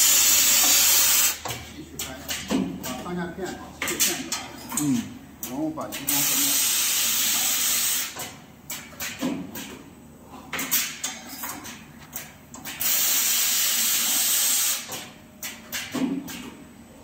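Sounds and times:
machine clicks and knocks: 1.4 - 3.2, 3.8 - 6.2, 14.9 - 16.6.

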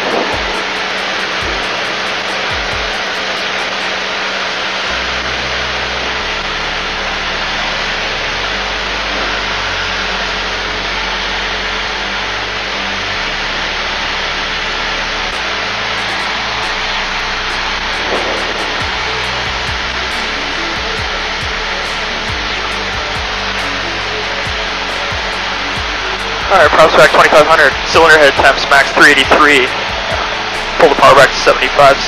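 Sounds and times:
aircraft engine and propeller drone: 0.0 - 32.0
rushing airflow: 14.5 - 31.8.

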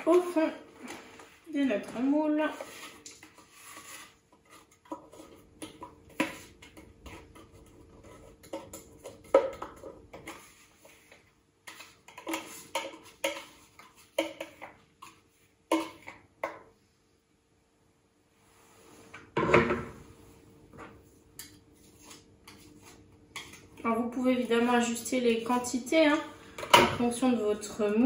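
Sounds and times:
utensil scraping plastic bowl: 0.1 - 16.2.

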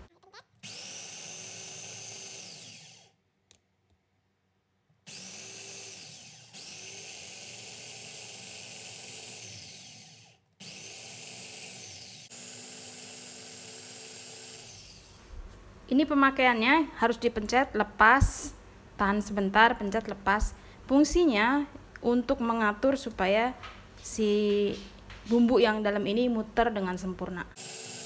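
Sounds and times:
electric food chopper motor whining: 0.0 - 3.2, 5.0 - 15.2, 27.6 - 28.0.

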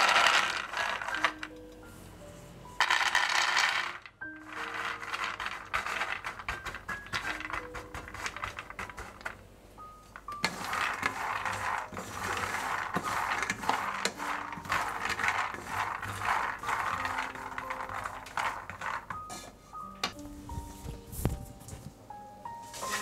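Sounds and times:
peanuts rattling in frying pan: 0.0 - 1.5, 2.8 - 9.4, 10.2 - 19.5.

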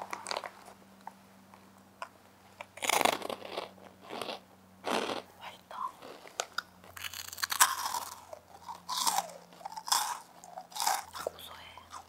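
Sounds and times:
crunchy chips being chewed: 0.0 - 0.7, 2.6 - 5.3, 6.0 - 12.0.

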